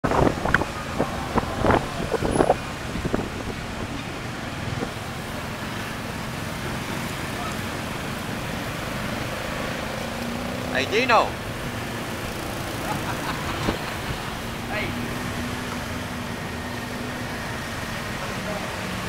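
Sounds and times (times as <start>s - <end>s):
wind on microphone: 0.0s - 5.0s
street traffic: 0.0s - 19.0s.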